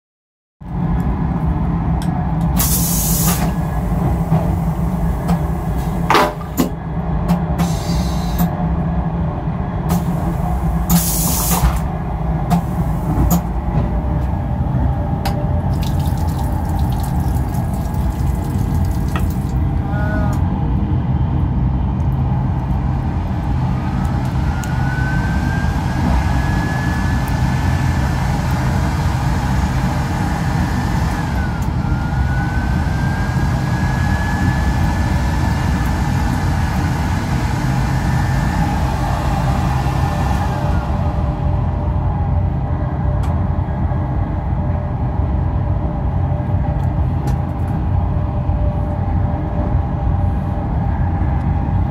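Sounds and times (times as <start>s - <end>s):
train rumbling: 0.6s - 51.9s
loud rush of air: 2.6s - 6.6s, 7.6s - 8.6s, 9.8s - 13.7s, 34.9s - 42.5s.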